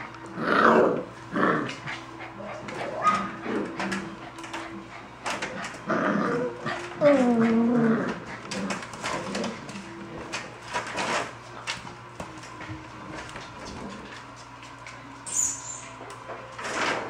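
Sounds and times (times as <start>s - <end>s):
paws scratching at pen: 6.6s - 15.0s.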